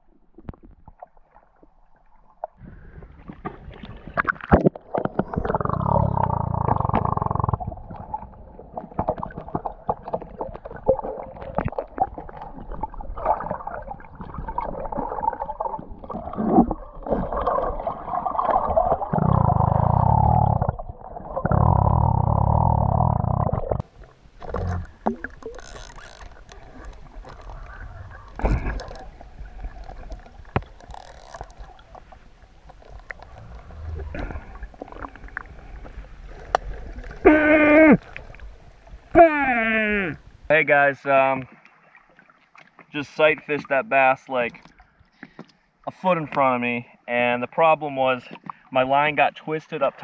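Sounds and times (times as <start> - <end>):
water rushing underwater: 0.0 - 39.2
muffled underwater rumbling and gurgling: 0.0 - 40.5.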